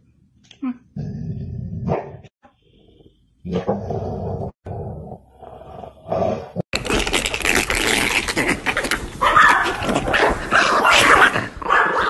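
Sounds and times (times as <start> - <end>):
dog barking and yelping: 9.2 - 12.0.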